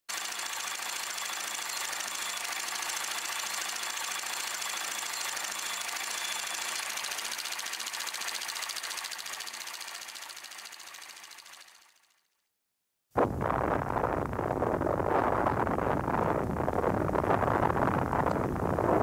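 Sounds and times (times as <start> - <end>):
film projector mechanism clattering: 0.1 - 12.0.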